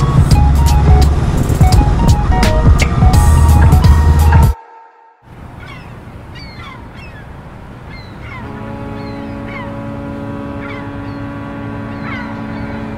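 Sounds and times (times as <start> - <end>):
long steady horn blast: 8.3 - 12.9.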